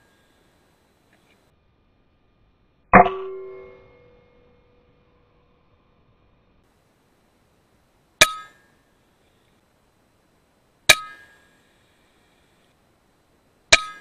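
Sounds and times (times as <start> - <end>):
metallic ring: 2.9 - 5.5, 8.2 - 8.7, 10.9 - 11.6, 13.7 - 14.0.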